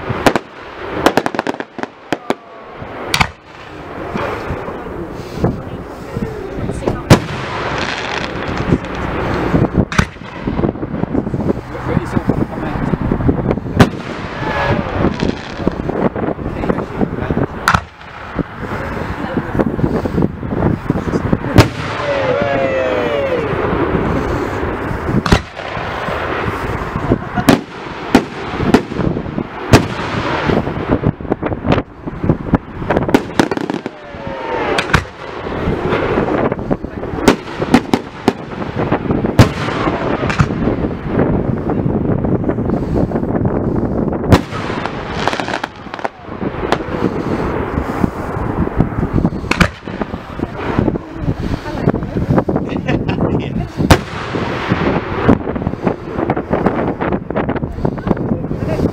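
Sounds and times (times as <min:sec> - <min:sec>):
firework shells bursting: 0:00.0 - 0:02.4, 0:03.0 - 0:04.7, 0:07.0 - 0:11.8, 0:17.6 - 0:18.7, 0:23.6 - 0:41.8, 0:44.2 - 0:50.9
loud firework bangs: 0:00.0 - 0:58.8.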